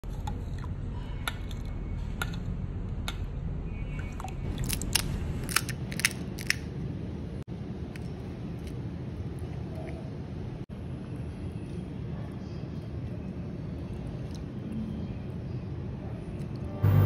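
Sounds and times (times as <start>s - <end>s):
steady low hum: 0.0s - 17.0s
crunchy cracks of crisp shells: 4.6s - 6.7s.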